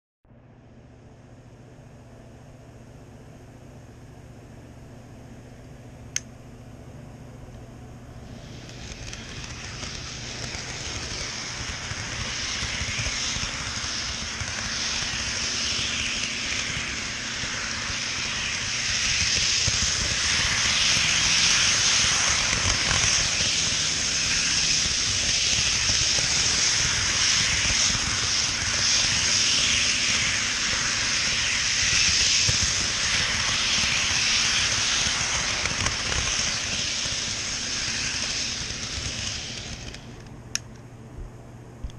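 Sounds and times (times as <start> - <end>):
model train wheels rolling on rail: 8.2 - 40.3.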